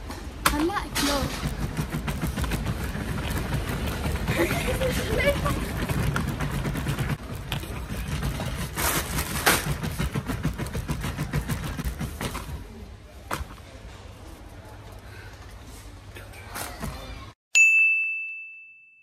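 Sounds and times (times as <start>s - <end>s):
cart frame rattling: 0.6s - 12.5s
shopping cart wheels rumbling: 0.6s - 12.8s.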